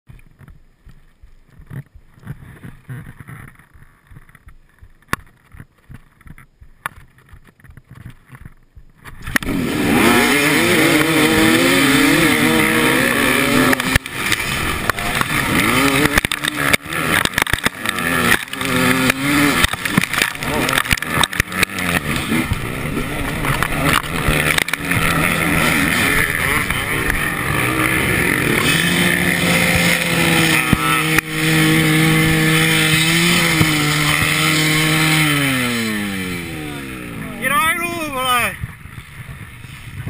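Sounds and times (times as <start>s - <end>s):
motorcycle engine idling and revving: 0.1s - 40.0s
sharp clicks: 23.2s - 31.4s.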